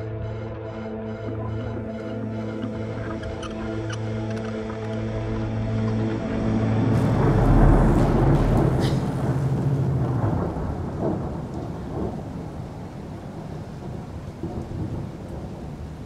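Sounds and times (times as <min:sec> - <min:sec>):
deep rumble: 0:00.0 - 0:16.0.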